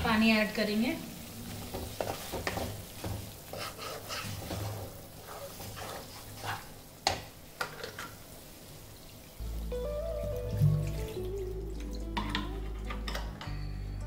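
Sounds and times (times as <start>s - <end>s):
paste sizzling in oil: 0.7s - 9.4s
spatula scraping paste in a pan: 2.0s - 6.8s.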